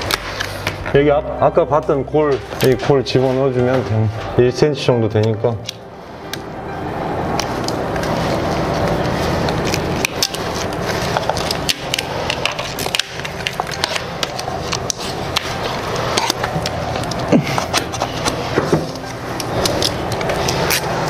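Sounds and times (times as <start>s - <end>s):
vinyl film clicking and crackling: 0.0s - 1.0s, 7.3s - 21.0s.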